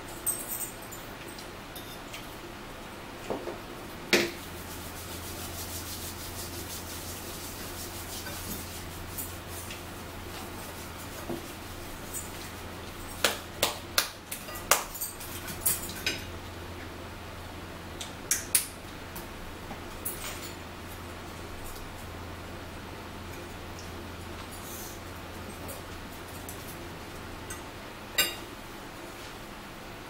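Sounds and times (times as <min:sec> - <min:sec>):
hands rubbing together: 0:04.4 - 0:09.8.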